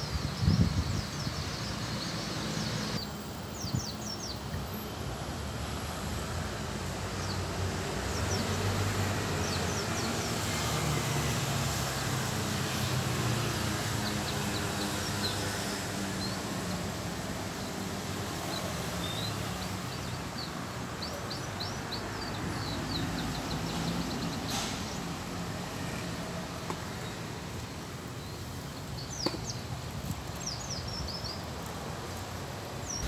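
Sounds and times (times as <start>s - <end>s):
distant traffic hum: 0.0s - 33.0s
small birds chirping: 7.1s - 11.8s, 12.6s - 33.0s.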